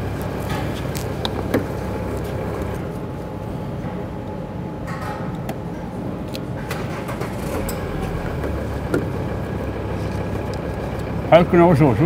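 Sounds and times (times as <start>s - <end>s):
engine running: 0.0s - 3.5s, 6.6s - 12.0s.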